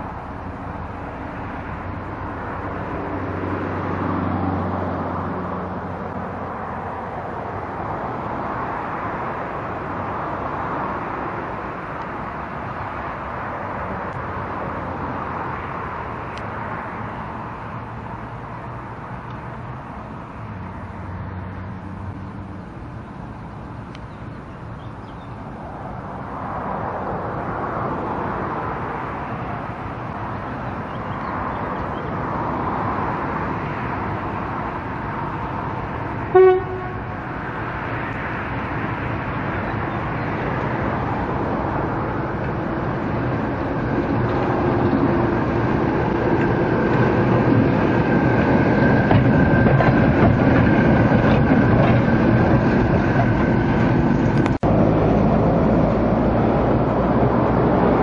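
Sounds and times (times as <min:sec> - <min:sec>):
diesel locomotive engine running: 0:00.0 - 0:26.6, 0:27.2 - 0:58.0
locomotive horn toot: 0:36.3 - 0:37.2.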